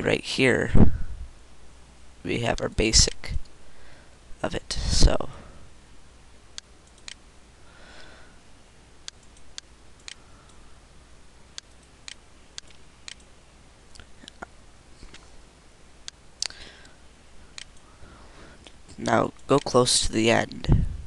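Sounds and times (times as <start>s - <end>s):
computer mouse clicking: 6.6s - 7.2s, 9.1s - 10.2s, 11.6s - 13.3s, 16.1s - 17.8s.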